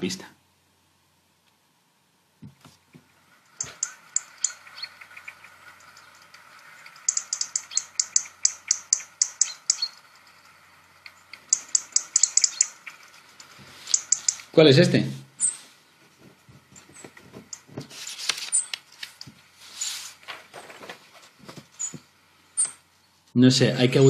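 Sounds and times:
recorded bird song through speaker: 3.6 - 10.1, 11.3 - 13.0, 13.9 - 14.8.

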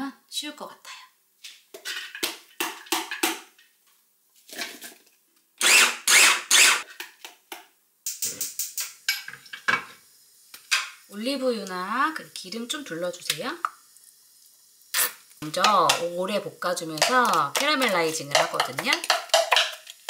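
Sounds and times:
utensils and cookware clattering: 1.8 - 3.4, 8.1 - 10.0, 16.8 - 20.0.

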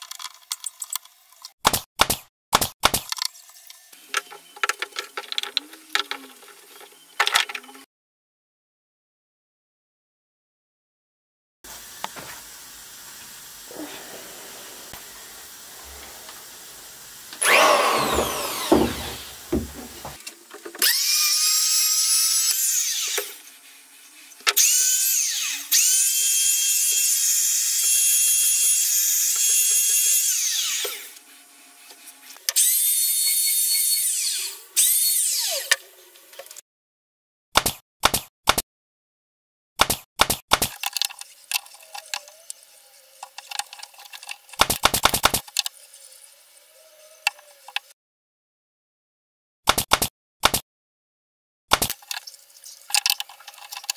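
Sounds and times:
electric power tool whine: 13.6 - 23.5, 24.5 - 35.8.

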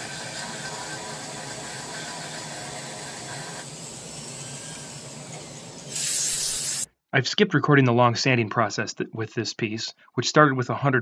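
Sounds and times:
power carver grinding wood: 0.0 - 6.9.

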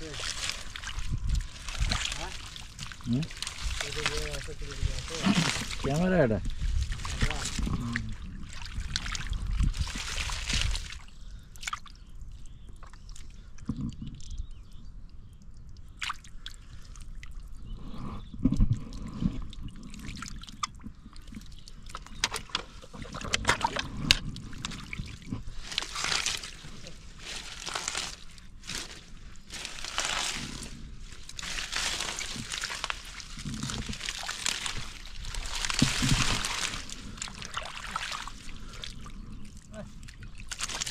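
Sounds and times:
water splashes and slaps: 0.0 - 12.0, 16.0 - 16.3, 20.0 - 39.1, 40.0 - 40.9
squelching in muddy water: 0.0 - 14.6, 15.2 - 40.9.

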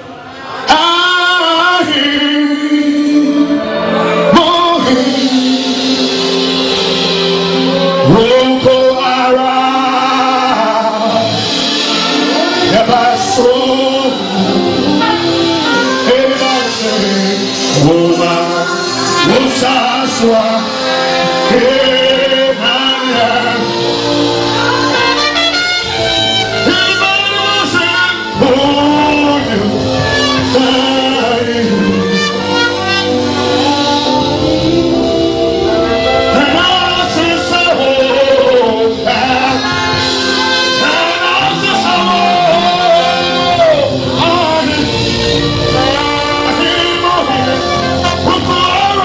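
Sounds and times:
man singing into microphone: 0.0 - 49.0
congas and drum kit: 0.1 - 49.0
woman backing vocal: 29.0 - 48.4.

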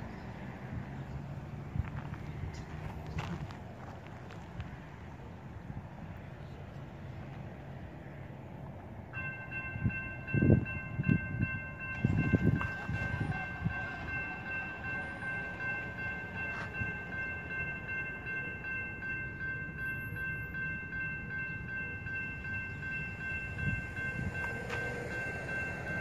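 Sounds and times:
crossing bell ringing: 8.8 - 26.0.

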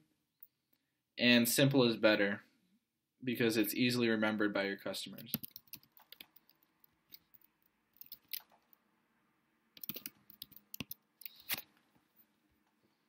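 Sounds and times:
computer keyboard keystrokes: 5.3 - 6.5, 9.8 - 11.4.

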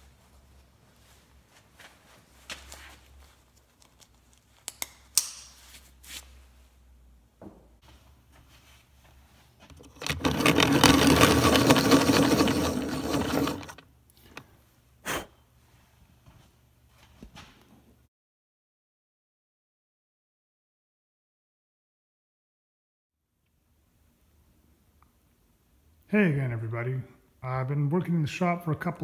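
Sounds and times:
wood and tools clattering: 9.6 - 14.4
tool rasping on wood: 10.0 - 13.8.

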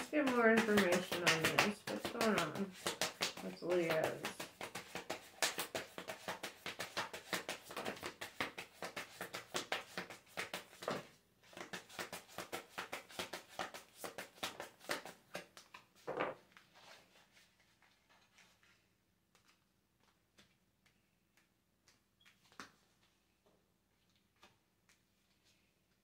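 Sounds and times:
cards being shuffled: 0.0 - 23.2, 24.0 - 25.7.

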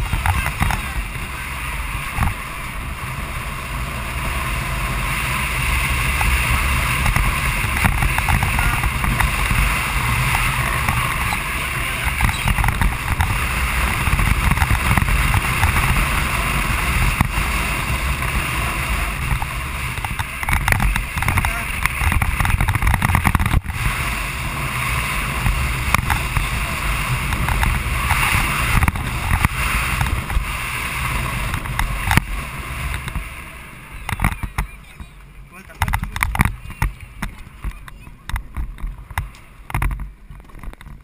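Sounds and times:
kart chassis knocks and clicks: 0.0 - 1.0, 7.0 - 16.0, 19.2 - 23.8, 27.2 - 30.4, 35.7 - 41.0
rushing wind: 0.0 - 41.0
tyre rumble on asphalt: 0.0 - 41.0.

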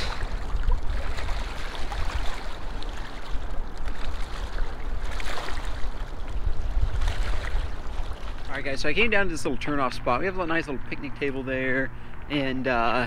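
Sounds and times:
waves lapping on rocks: 0.0 - 8.5
wind buffeting microphone: 0.0 - 11.1.

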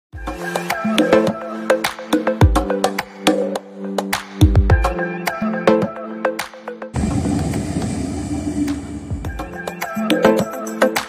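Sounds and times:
music with percussive clicks: 1.8 - 5.0, 9.4 - 11.0
deep bass hit: 7.0 - 9.6.

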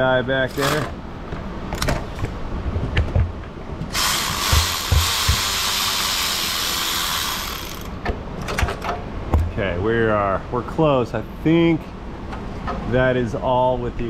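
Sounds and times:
air ratchet running: 0.5 - 0.9, 3.9 - 8.0.

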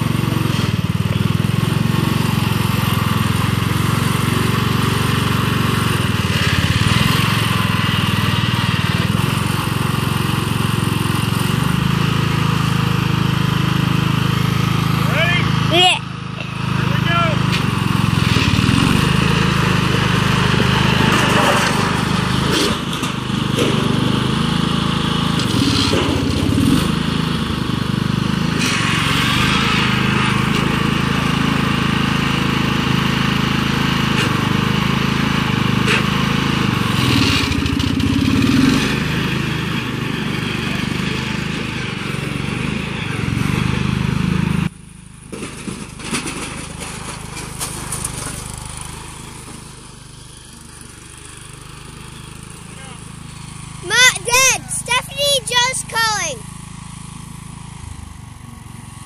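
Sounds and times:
garden tractor engine running: 0.0 - 59.0.

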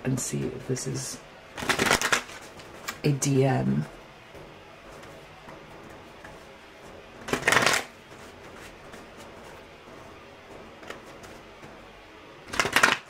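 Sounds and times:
cards shuffling flutter: 1.6 - 3.0, 7.3 - 9.3, 12.5 - 13.0.

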